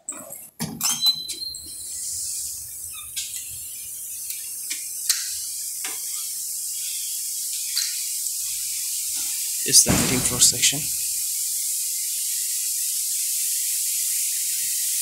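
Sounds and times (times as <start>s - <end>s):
knitting machines hissing: 1.8s - 15.0s
sharp clicks: 9.9s - 10.9s.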